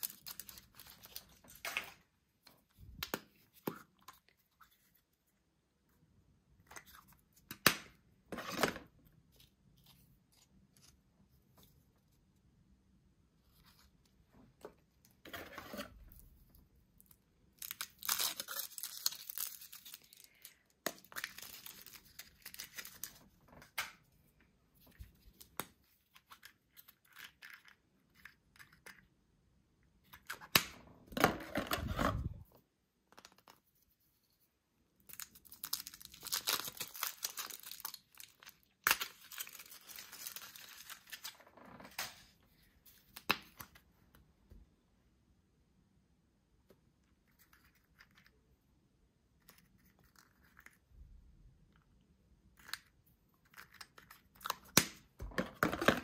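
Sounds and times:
foil wrappers crinkling: 0:35.2 - 0:41.3.

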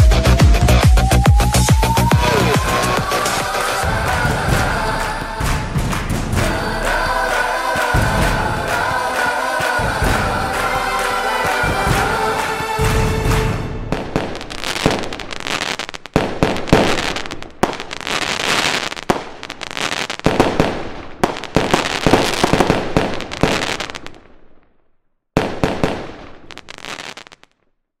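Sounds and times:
firework crackle: 0:01.4 - 0:24.4, 0:25.4 - 0:27.6
firework shells bursting: 0:02.8 - 0:19.6.

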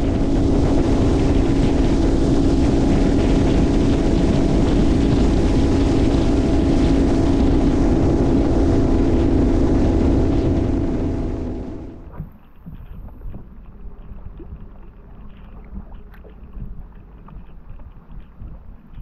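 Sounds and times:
wind rushing over microphone: 0:00.0 - 0:12.2
outboard motor droning: 0:00.0 - 0:18.8.

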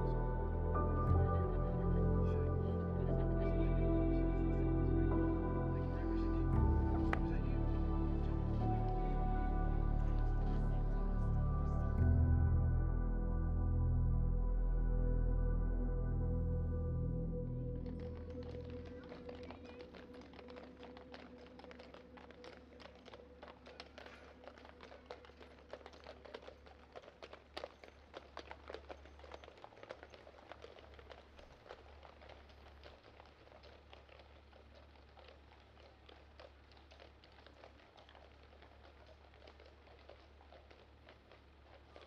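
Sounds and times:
horse hooves clip-clopping on tarmac: 0:17.9 - 0:42.0.

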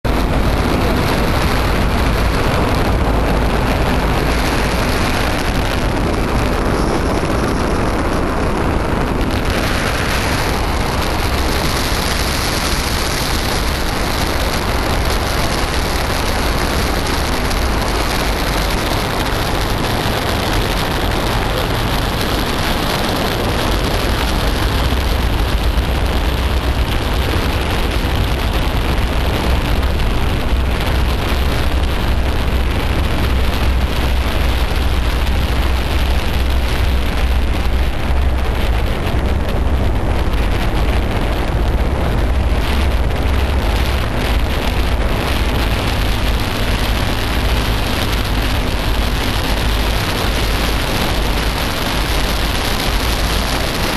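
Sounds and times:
boat engine rumble: 0:00.0 - 0:53.9
wind and water rushing: 0:00.0 - 0:53.9.

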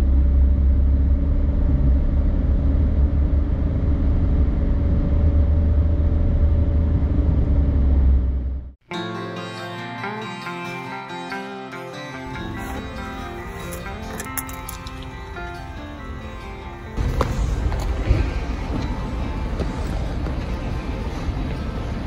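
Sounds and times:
car interior road rumble: 0:00.0 - 0:08.7
acoustic guitar music: 0:08.8 - 0:22.0.

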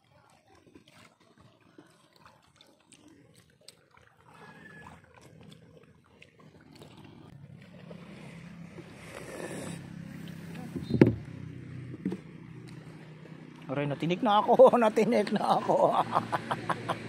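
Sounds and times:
motor engine humming: 0:07.0 - 0:17.0.

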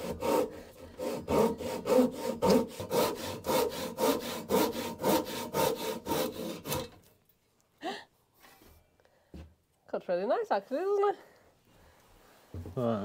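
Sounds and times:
hand saw cutting timber: 0:00.0 - 0:07.1.

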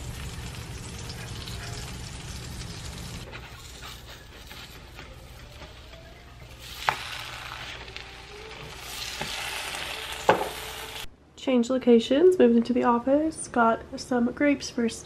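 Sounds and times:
batter sizzling in frying pan: 0:00.0 - 0:11.1.

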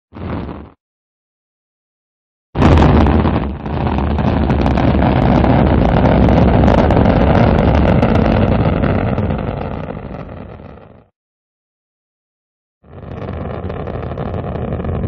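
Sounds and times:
rocket engine rumbling: 0:02.6 - 0:11.0, 0:12.9 - 0:15.0.

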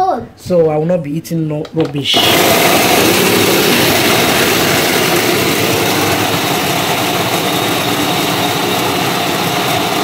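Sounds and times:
food processor motor whirring: 0:02.0 - 0:10.0.

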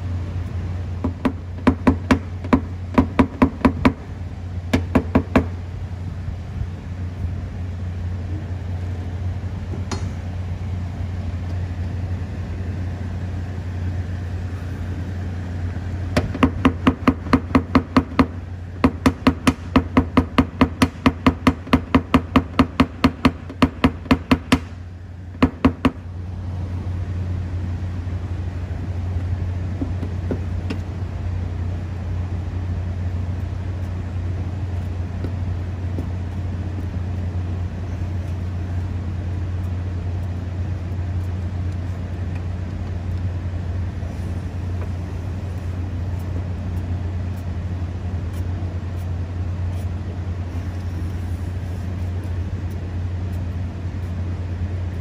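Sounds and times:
low hum: 0:00.0 - 0:55.0
hammer tapping car body metal: 0:01.0 - 0:04.0, 0:04.7 - 0:05.6, 0:16.2 - 0:24.7, 0:25.4 - 0:26.0.

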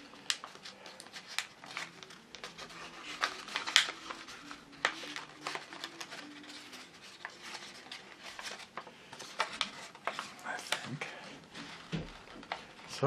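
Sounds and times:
paper crinkling: 0:00.0 - 0:13.0.

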